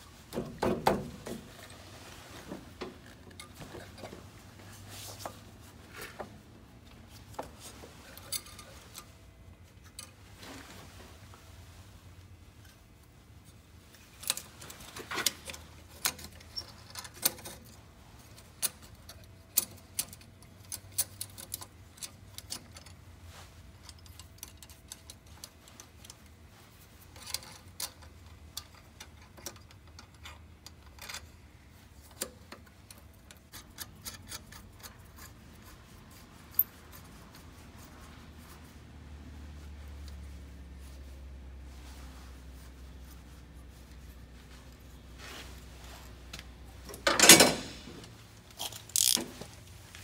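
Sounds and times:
metal hose clamp clicking: 32.1 - 35.3, 48.5 - 49.4.

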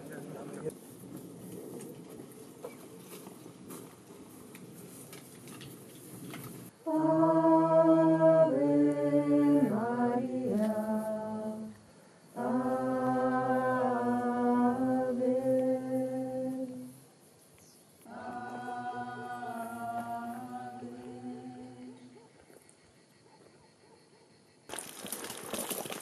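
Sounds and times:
faint outdoor background: 0.0 - 26.0
voices singing slow chant: 6.8 - 22.4.

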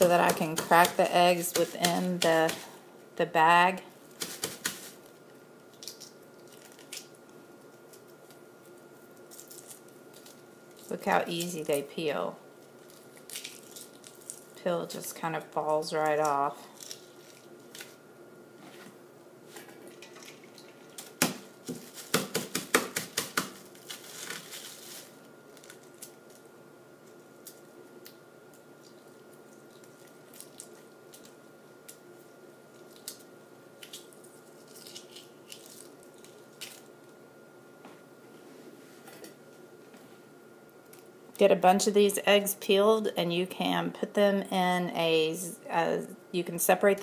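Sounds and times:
plastic bag crinkling: 4.2 - 11.9, 12.7 - 14.6, 23.2 - 26.5
eggshells crunching in plastic bag: 12.7 - 14.6.

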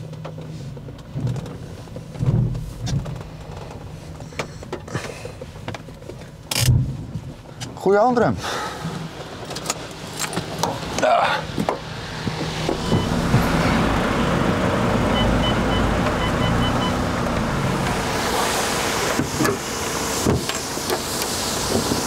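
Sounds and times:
vehicle engine running: 8.6 - 22.0.

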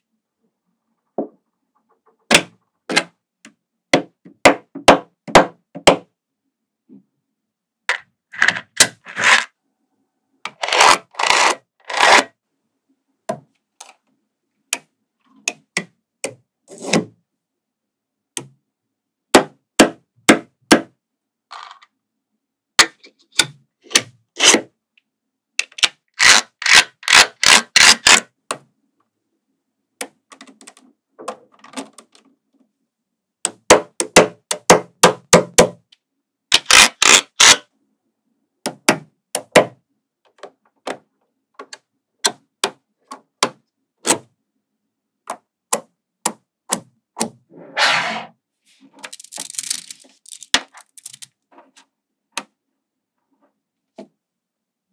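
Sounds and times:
magnetic balls clicking together: 49.0 - 51.3.

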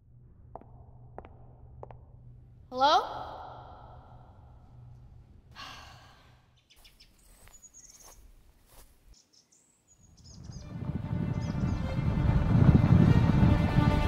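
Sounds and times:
soft breathy rush: 5.5 - 6.6
low rumble: 10.4 - 14.0.

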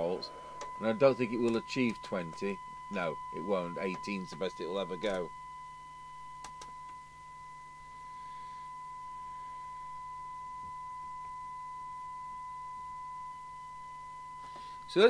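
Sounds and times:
low hum: 0.0 - 15.0
steady test tone from radio: 0.0 - 15.0.

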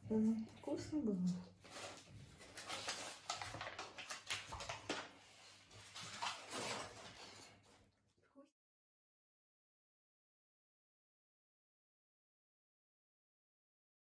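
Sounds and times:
aluminium foil crinkling: 0.6 - 7.9.

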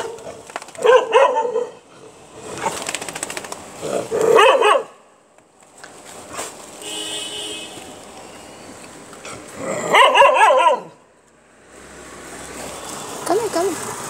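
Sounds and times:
dog barking: 0.0 - 1.8, 4.1 - 5.0, 9.8 - 11.0.

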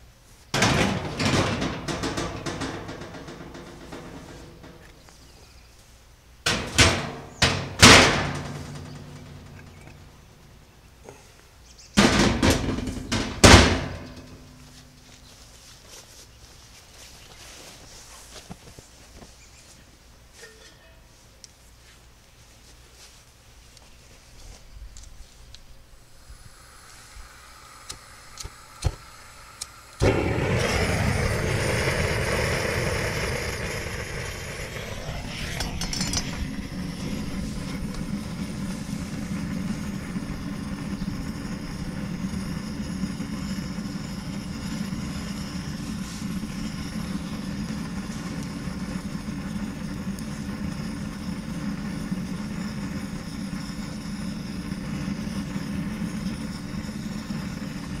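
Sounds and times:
gas torch flame roaring: 26.0 - 58.0.

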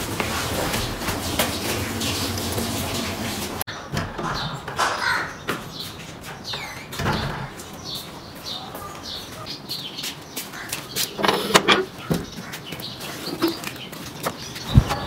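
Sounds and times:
harsh bird calls: 3.7 - 15.0.

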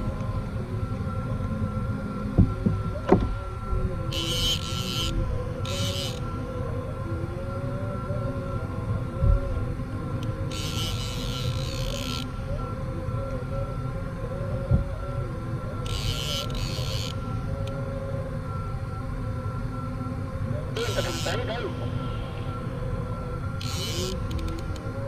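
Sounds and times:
fishing reel drag buzzing: 4.1 - 6.6, 10.5 - 12.4, 15.8 - 17.3, 20.8 - 21.4, 23.6 - 24.9.

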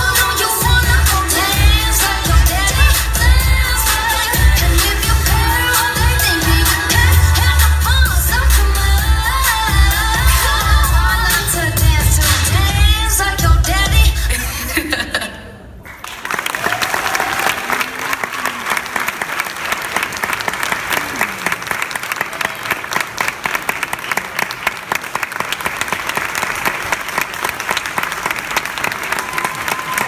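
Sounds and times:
music: 0.0 - 14.8
audience applauding: 15.8 - 30.0.

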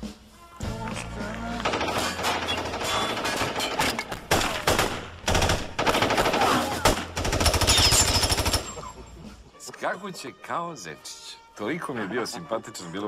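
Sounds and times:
rapid automatic gunfire: 1.6 - 8.7.

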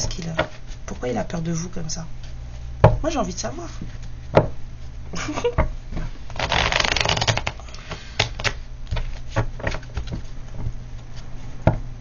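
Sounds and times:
cards being shuffled: 6.3 - 11.3
cards snapping and tapping: 6.4 - 7.6, 8.2 - 10.2.

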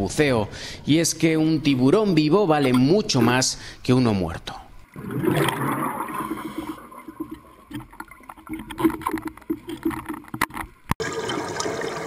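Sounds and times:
underwater bubbling and gurgling: 4.8 - 12.0
scuba regulator bubbles: 4.9 - 10.4.

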